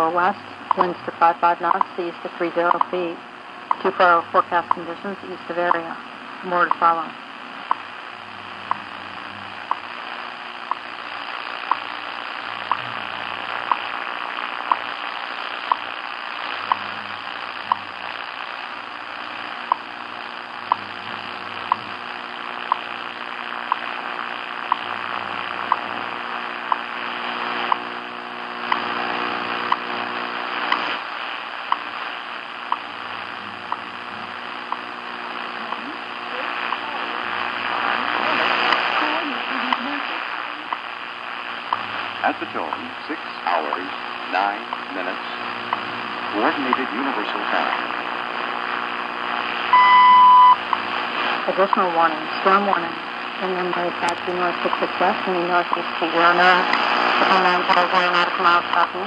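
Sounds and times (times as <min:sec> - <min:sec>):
static hiss: 0:00.0 - 0:59.0
time signal ticks: 0:00.6 - 0:02.0, 0:02.6 - 0:03.0, 0:03.7 - 0:04.0, 0:04.6 - 0:05.0, 0:05.6 - 0:05.9, 0:06.6 - 0:07.0, 0:10.6 - 0:10.9, 0:11.7 - 0:11.9, 0:13.6 - 0:13.9, 0:14.7 - 0:14.9, 0:15.7 - 0:15.9, 0:16.7 - 0:16.9, 0:17.7 - 0:17.9, 0:19.6 - 0:19.9, 0:20.7 - 0:20.9, 0:22.7 - 0:22.9, 0:25.7 - 0:25.9, 0:51.6 - 0:51.9.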